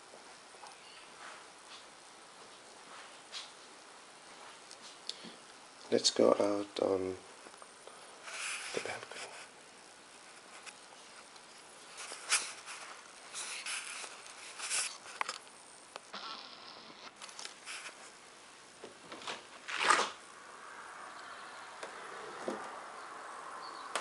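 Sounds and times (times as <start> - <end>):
low hiss: 0.0 - 24.0
camera handling scrapes: 12.0 - 15.4.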